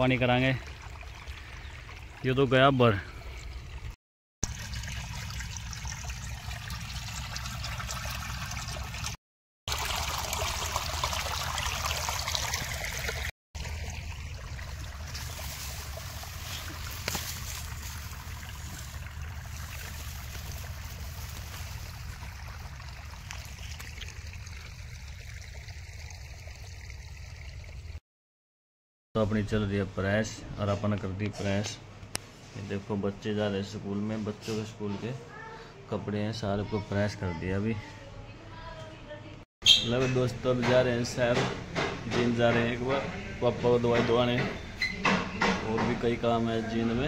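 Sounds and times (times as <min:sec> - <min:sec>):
water flowing and trickling: 0:00.0 - 0:28.0.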